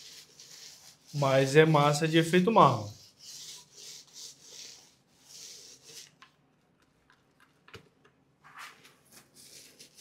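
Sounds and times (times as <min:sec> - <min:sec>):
paint roller on rough wall: 0:00.0 - 0:06.2.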